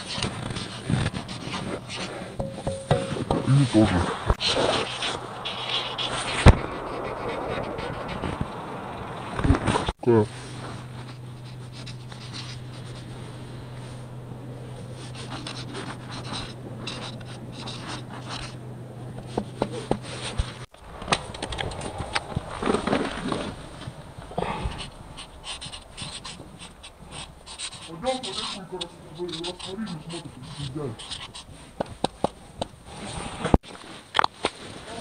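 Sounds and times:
marker scratching on concrete: 0.0 - 2.4, 4.4 - 8.4, 10.5 - 13.2, 14.8 - 18.6, 24.7 - 33.5
low steady hum: 0.0 - 33.6.

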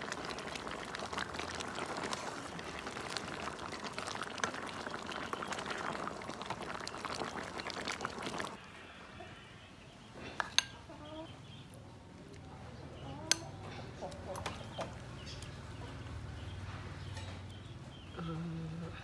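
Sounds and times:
soup bubbling in a pot: 0.0 - 8.7.

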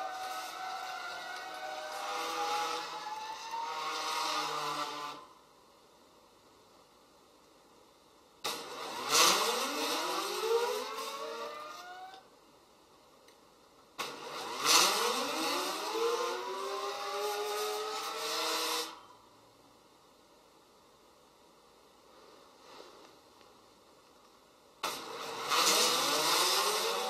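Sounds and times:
stepper motors whining: 0.0 - 5.3, 8.5 - 12.3, 14.0 - 19.1, 24.8 - 27.0.

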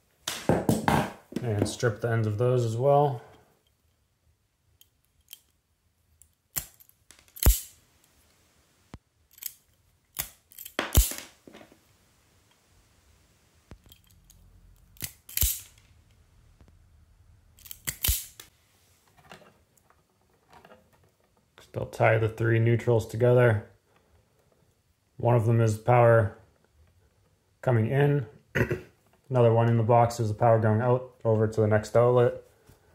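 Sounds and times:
wire stripper click and snap: 6.5 - 7.8, 13.7 - 15.9, 17.6 - 18.5.

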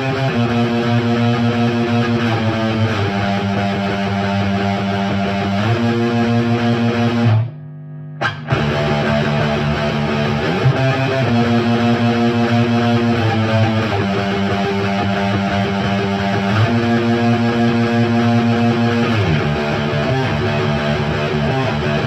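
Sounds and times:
electric guitar playing chord riff: 0.0 - 22.0.

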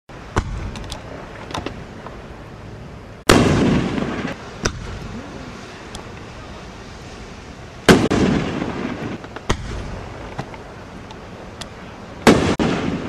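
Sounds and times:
fireworks sharp reports: 3.3 - 10.8, 11.8 - 13.0.

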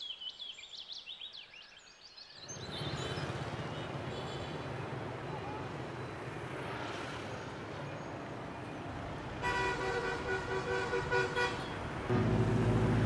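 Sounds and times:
street traffic noise: 2.4 - 13.0
vehicle horn toots: 9.4 - 13.0.

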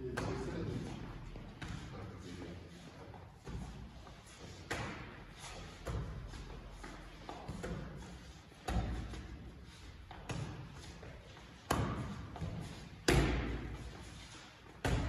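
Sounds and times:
boxing gloves hitting mitts: 3.4 - 15.0.

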